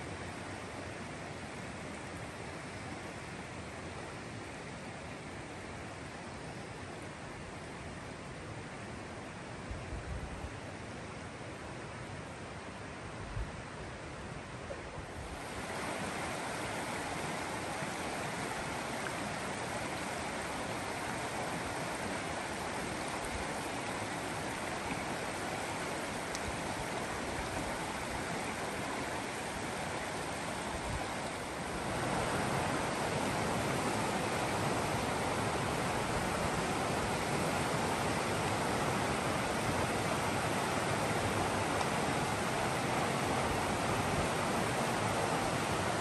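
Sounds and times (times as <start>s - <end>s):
creek water rushing over rocks: 14.5s - 46.0s.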